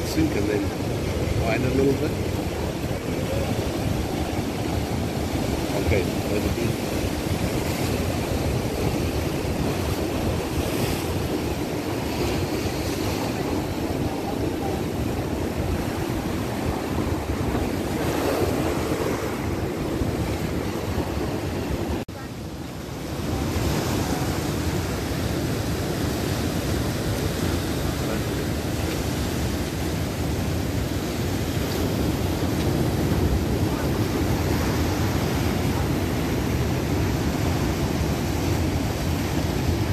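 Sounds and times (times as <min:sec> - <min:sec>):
wind buffeting microphone: 0:00.0 - 0:22.0
ocean surf breaking on rocks: 0:00.0 - 0:39.9.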